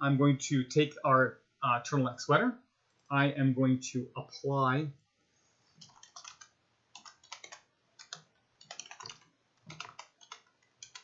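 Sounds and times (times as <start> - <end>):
computer keyboard typing: 5.8 - 11.0.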